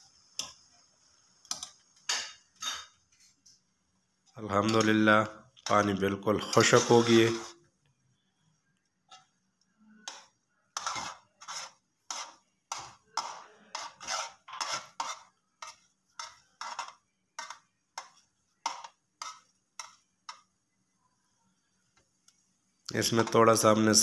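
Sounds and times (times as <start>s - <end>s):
metal spoon scraping a pot: 1.5s - 3.0s, 5.6s - 7.6s, 9.1s - 20.5s.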